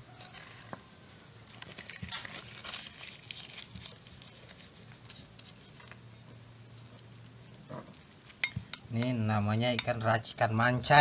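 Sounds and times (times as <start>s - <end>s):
paper packet being crumpled: 1.4s - 7.4s.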